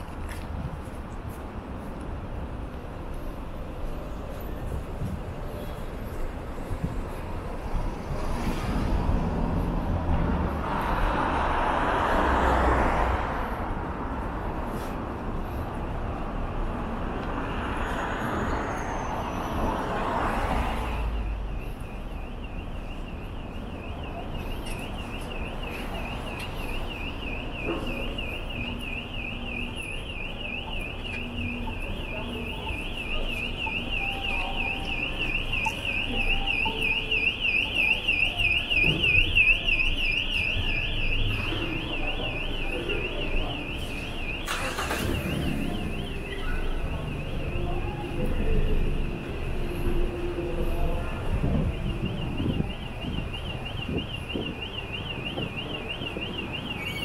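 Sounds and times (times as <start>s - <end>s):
street traffic rumble: 0.0s - 57.0s
car alarm siren warbling: 20.0s - 57.0s.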